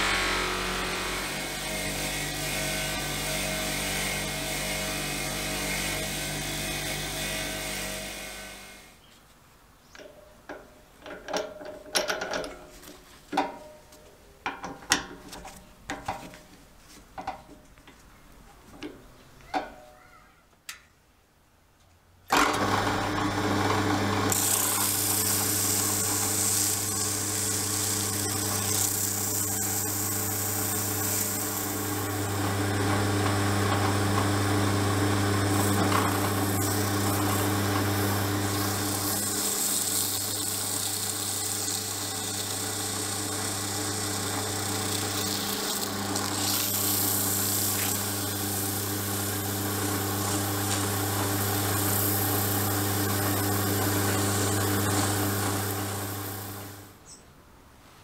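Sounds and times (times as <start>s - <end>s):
drill press motor humming: 22.3s - 56.9s.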